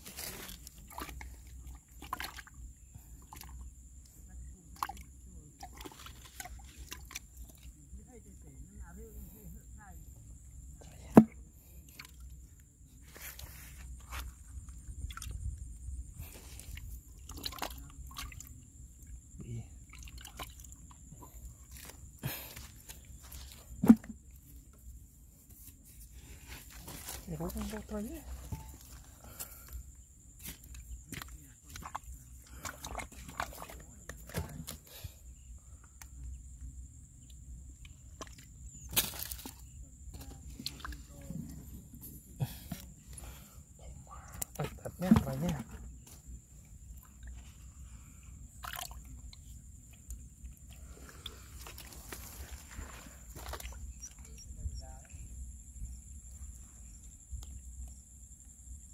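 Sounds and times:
soil crunching crackles: 0:00.0 - 0:02.4, 0:13.0 - 0:15.4, 0:16.2 - 0:18.6, 0:21.2 - 0:35.1, 0:37.8 - 0:43.6, 0:49.8 - 0:54.4
hand squelching in wet mud: 0:00.0 - 0:02.5, 0:16.3 - 0:18.5, 0:30.4 - 0:34.9, 0:48.6 - 0:54.2.

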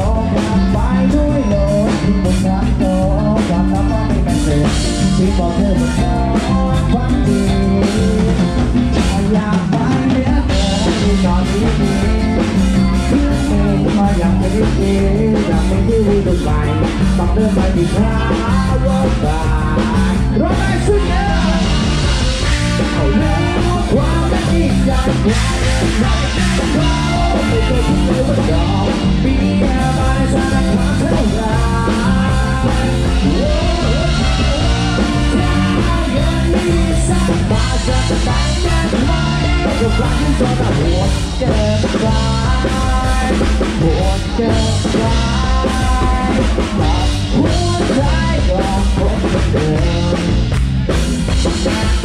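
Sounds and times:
live dance band playing: 0:00.0 - 0:52.0
man singing: 0:00.0 - 0:52.0.

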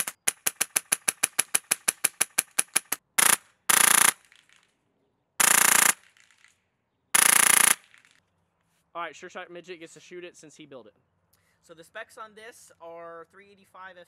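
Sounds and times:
airsoft rifle automatic bursts: 0:00.0 - 0:04.4, 0:05.4 - 0:06.5, 0:07.2 - 0:08.2
airsoft rifle shots: 0:00.0 - 0:04.6, 0:05.4 - 0:06.6, 0:07.2 - 0:08.2.

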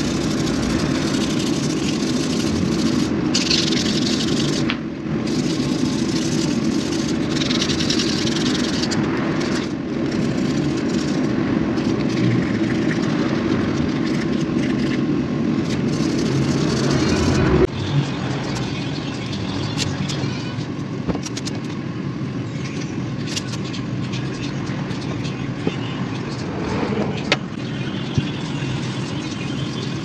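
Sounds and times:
sandpaper rubbing on wood: 0:00.0 - 0:15.0, 0:15.6 - 0:17.6
motor-like hum: 0:00.0 - 0:30.0.

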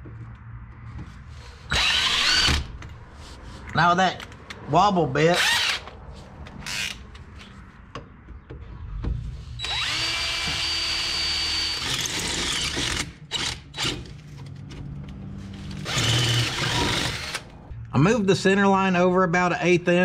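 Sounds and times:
power drill drilling metal: 0:01.7 - 0:02.7, 0:05.3 - 0:05.9, 0:09.6 - 0:14.0, 0:15.8 - 0:17.4.

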